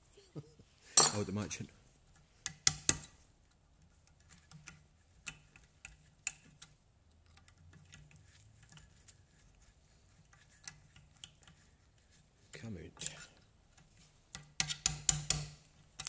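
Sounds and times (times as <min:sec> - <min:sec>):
metallic clicks of hand tool: 0:14.3 - 0:16.0.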